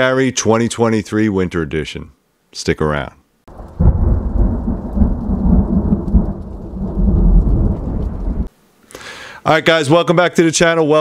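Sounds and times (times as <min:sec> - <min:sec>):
low rumble of thunder: 0:03.5 - 0:08.5.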